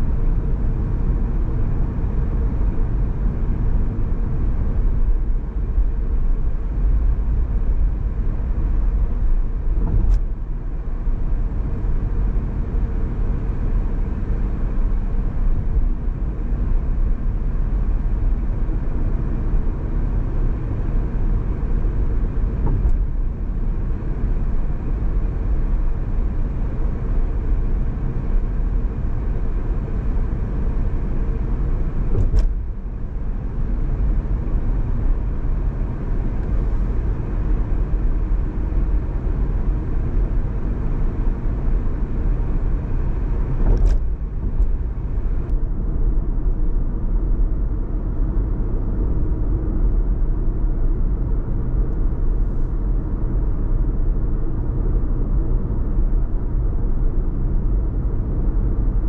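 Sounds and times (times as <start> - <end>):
road and tyre rumble: 0.0 - 59.0.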